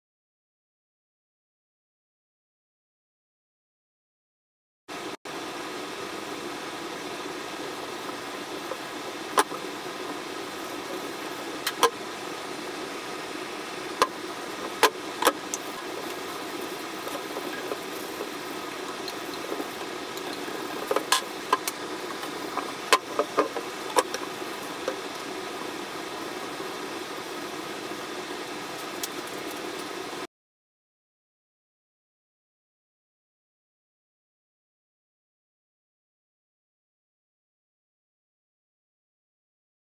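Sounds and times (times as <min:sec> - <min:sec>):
motor humming: 0:05.5 - 0:30.2.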